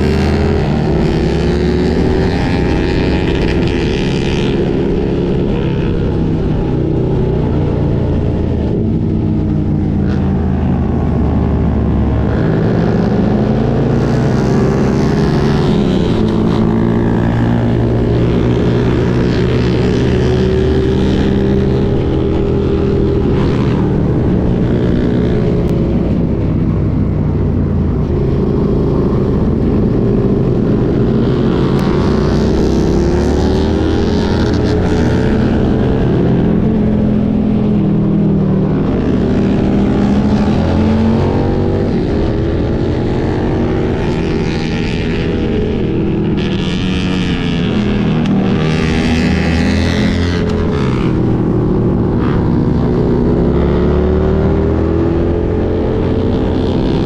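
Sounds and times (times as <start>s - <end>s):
wind noise: 0.0s - 57.0s.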